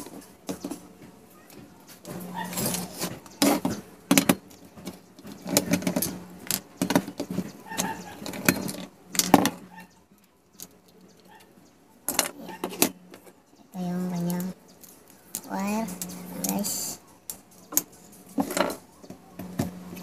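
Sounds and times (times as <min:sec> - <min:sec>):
low steady hum: 0:12.1 - 0:20.0.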